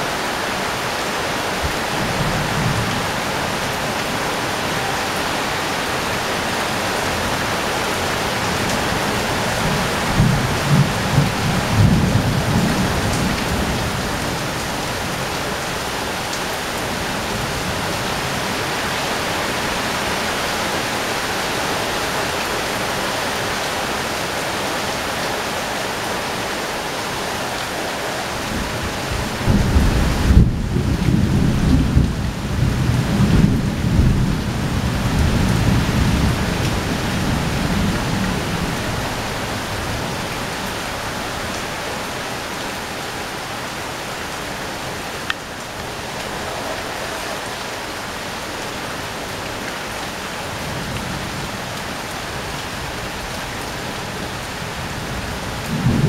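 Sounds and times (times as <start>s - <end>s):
heavy rain on metal roof: 0.0s - 56.0s.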